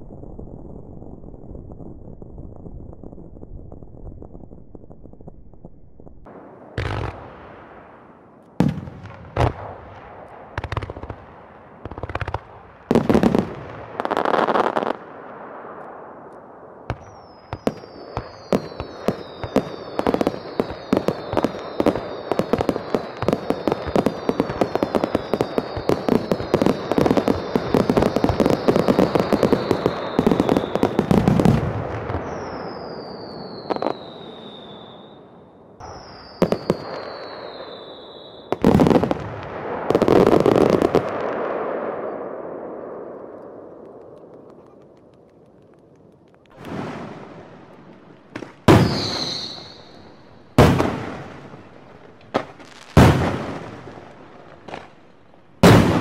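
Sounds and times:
fireworks booming: 0:00.0 - 0:56.0
fireworks crackling pops: 0:00.0 - 0:56.0
falling firework whistles: 0:16.9 - 0:43.6, 0:48.4 - 0:53.9.

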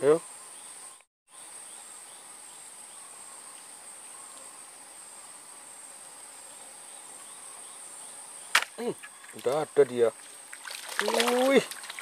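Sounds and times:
faint insect chirps: 0:00.0 - 0:12.0
insects droning: 0:00.0 - 0:12.0.

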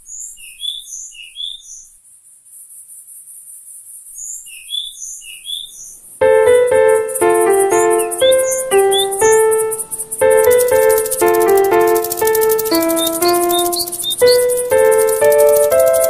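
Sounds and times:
keyboard chords: 0:06.2 - 0:16.0
short chirping blips: 0:06.2 - 0:16.0.

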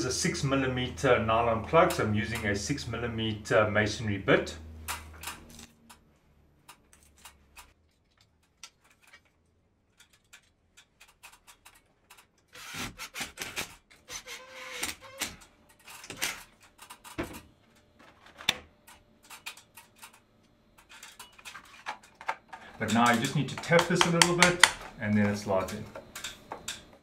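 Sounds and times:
drill-driver whine: 0:12.5 - 0:15.4.

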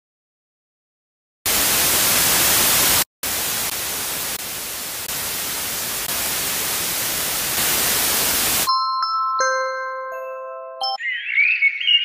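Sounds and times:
white noise hiss: 0:01.5 - 0:08.7.

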